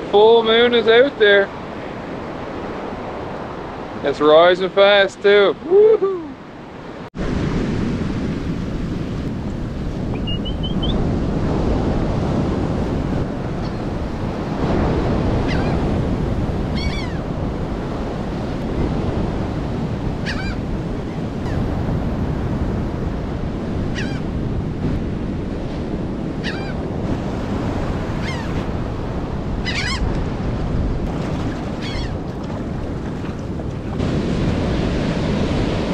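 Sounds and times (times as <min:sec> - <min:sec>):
ocean surf breaking: 0:00.0 - 0:35.9
wind on microphone: 0:05.6 - 0:35.9
short bird calls: 0:10.2 - 0:11.0, 0:31.8 - 0:32.2.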